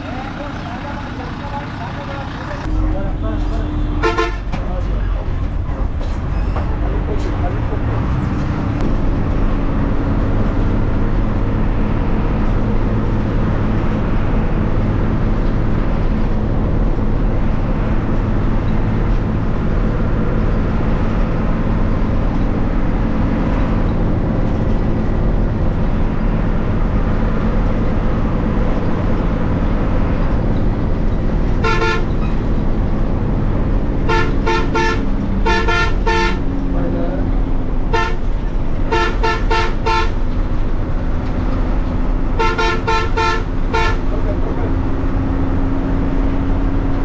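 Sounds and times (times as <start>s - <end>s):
bus engine running: 0.0s - 47.0s
pulsing horn blast: 2.6s - 4.6s, 31.6s - 32.4s, 34.0s - 37.0s, 37.9s - 40.3s, 42.4s - 44.4s.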